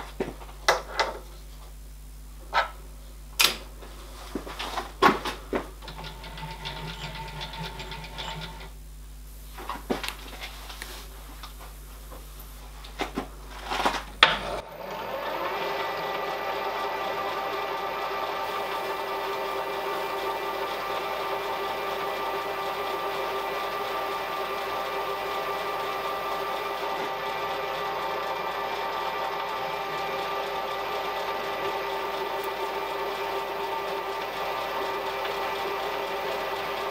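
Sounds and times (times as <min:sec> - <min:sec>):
milling machine spindle whining: 0:05.8 - 0:08.8, 0:14.4 - 0:36.9.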